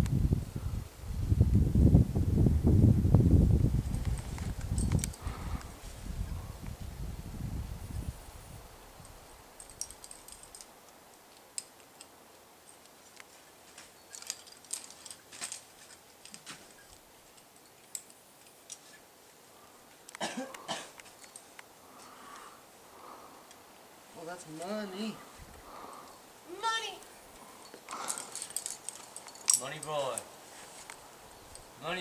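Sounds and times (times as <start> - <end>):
wind rumble on microphone: 0.0 - 10.0
rustling: 3.7 - 6.8, 8.7 - 32.0
climbing gear clinking: 4.0 - 5.8, 9.0 - 19.0, 20.9 - 22.1, 27.0 - 31.8.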